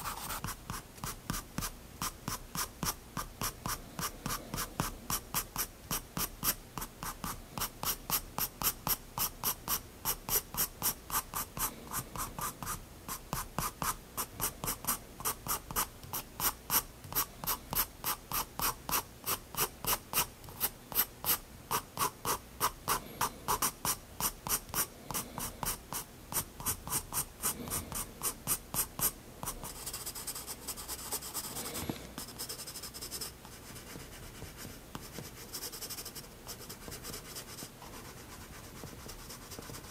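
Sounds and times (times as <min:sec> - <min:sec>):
pencil scratching on paper: 0:00.0 - 0:39.9.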